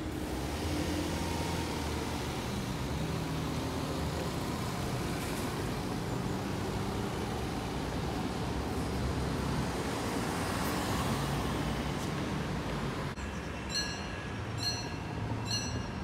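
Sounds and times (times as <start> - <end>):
cars driving over crossing: 0.0 - 16.0.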